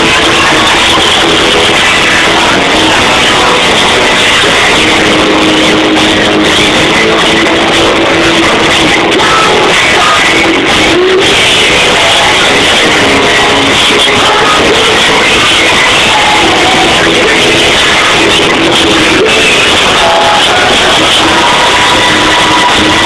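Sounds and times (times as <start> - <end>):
drums: 0.0 - 23.0
electric guitar: 0.0 - 23.0.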